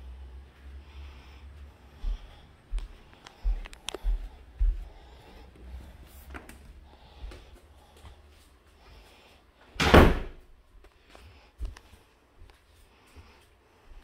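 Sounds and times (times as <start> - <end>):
door bang: 9.8 - 10.4.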